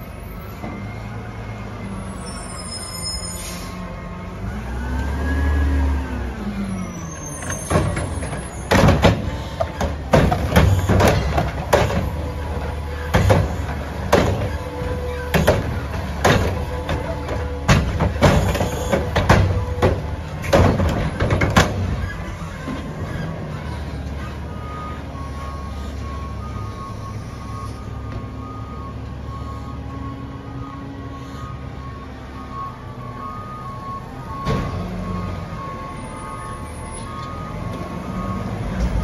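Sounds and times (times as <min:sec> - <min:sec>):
truck engine humming: 0:00.0 - 0:39.0
truck engine revving: 0:03.8 - 0:39.0
cart knocking against truck arm: 0:07.6 - 0:22.1.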